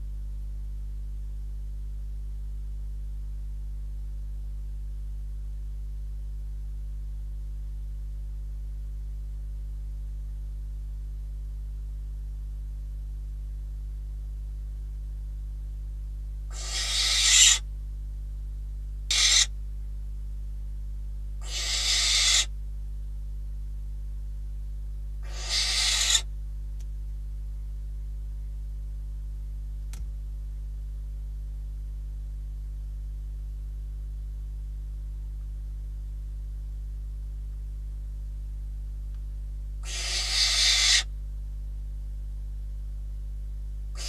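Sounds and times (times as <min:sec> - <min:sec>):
low electrical hum: 0:00.0 - 0:44.0
owl hissing calls: 0:16.5 - 0:17.7, 0:19.1 - 0:19.6, 0:21.4 - 0:22.5, 0:25.2 - 0:26.3, 0:39.8 - 0:41.1.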